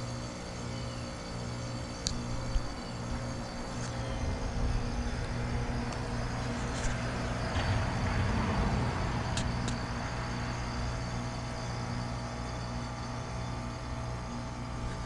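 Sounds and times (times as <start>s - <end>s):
heat pump compressor hum: 0.0s - 15.0s.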